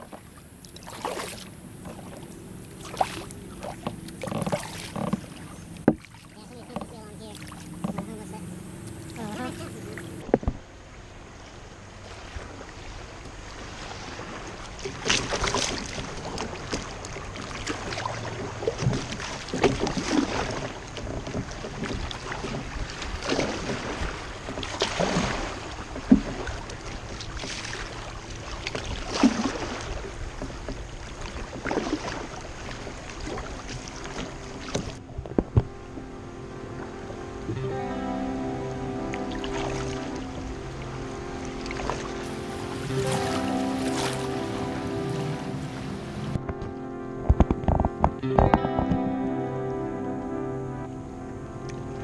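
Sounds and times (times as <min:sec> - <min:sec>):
water slapping against boat: 0:00.0 - 0:10.7, 0:12.0 - 0:36.0, 0:41.4 - 0:48.6
river water rushing: 0:00.0 - 0:21.0, 0:36.4 - 0:46.4.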